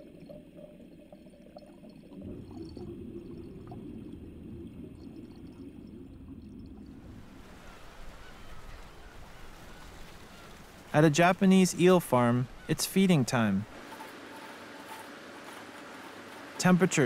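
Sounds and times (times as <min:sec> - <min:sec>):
water pouring and burbling: 0:00.0 - 0:10.2.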